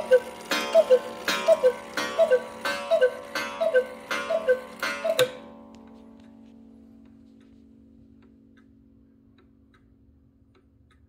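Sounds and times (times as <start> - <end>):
two-note cuckoo calls: 0.0 - 5.5
ringing gong strike: 0.0 - 6.0.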